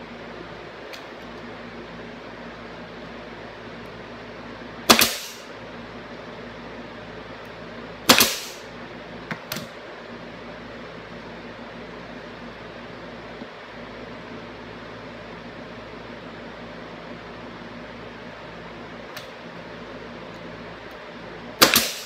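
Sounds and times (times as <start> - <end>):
pneumatic nailer firing: 4.8 - 5.5, 8.0 - 8.7, 21.6 - 22.0.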